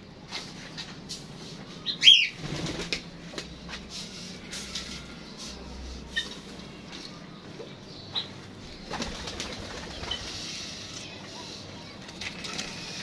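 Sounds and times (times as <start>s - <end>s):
wings flapping: 2.4s - 3.1s, 8.8s - 10.4s.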